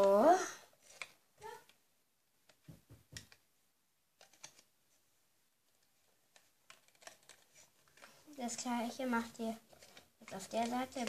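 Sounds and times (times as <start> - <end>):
small plastic clicks and taps: 2.4 - 3.4.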